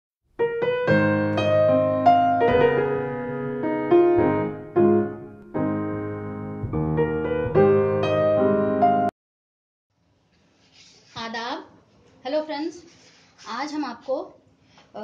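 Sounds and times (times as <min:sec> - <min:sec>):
piano music: 0:00.4 - 0:09.1.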